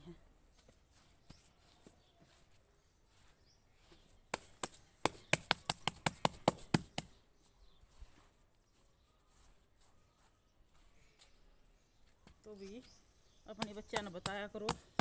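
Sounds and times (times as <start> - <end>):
hands slapping wet dung: 4.3 - 7.2, 13.5 - 15.0.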